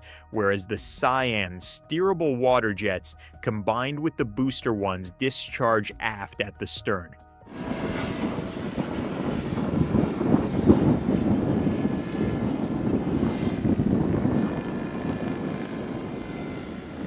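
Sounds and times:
wind buffeting microphone: 0:07.5 - 0:17.0.

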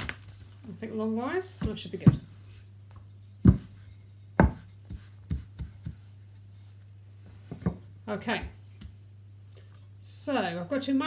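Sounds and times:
rolling pin knocking on worktop: 0:03.4 - 0:03.8, 0:04.4 - 0:06.1.

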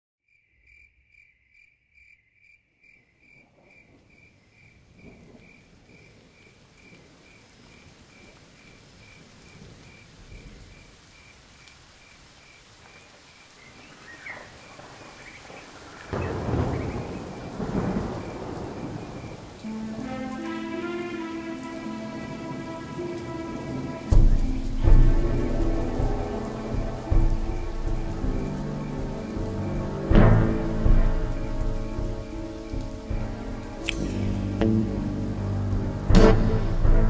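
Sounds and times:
cricket chirping: 0:00.3 - 0:15.2, 0:16.2 - 0:19.6
rain hiss: 0:03.6 - 0:37.0
thunder clap: 0:14.6 - 0:37.0.

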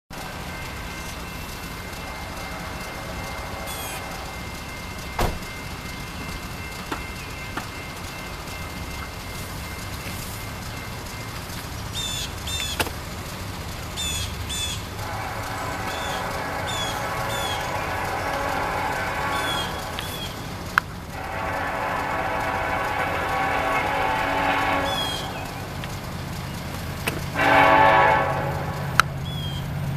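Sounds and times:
distant many-toned hum: 0:10.6 - 0:29.6
steady low rumble: 0:12.3 - 0:27.4.

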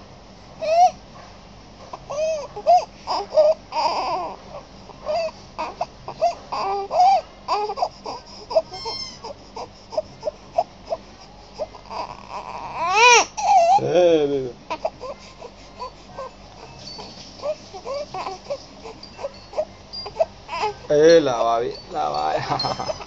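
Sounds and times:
infant crying: 0:00.6 - 0:01.0, 0:02.1 - 0:21.5, 0:22.1 - 0:23.0.

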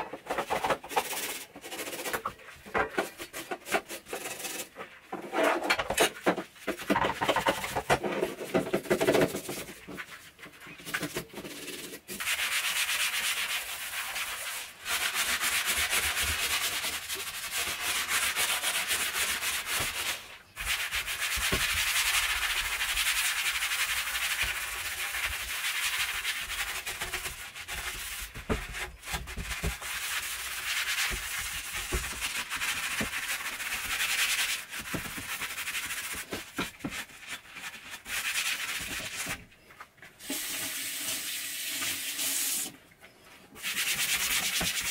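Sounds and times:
sponge scrubbing cabinet doors: 0:00.0 - 0:39.5, 0:40.1 - 0:42.8, 0:43.5 - 0:44.9.

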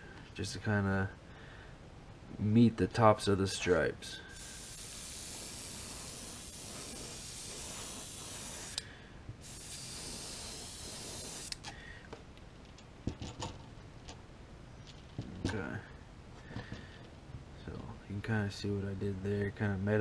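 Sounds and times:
airbrush spraying hiss: 0:04.3 - 0:08.8, 0:09.4 - 0:11.6.

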